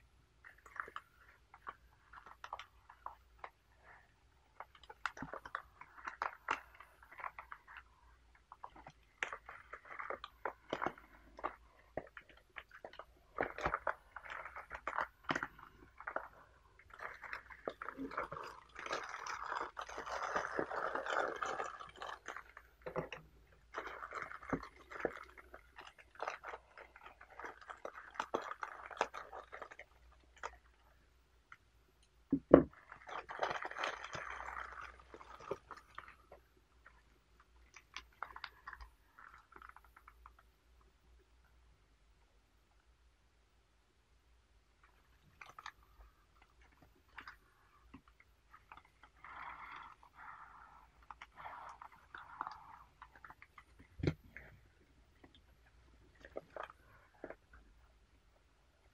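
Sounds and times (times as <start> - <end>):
plastic wrapper crinkling: 8.5 - 30.8, 32.7 - 40.4, 44.8 - 57.6.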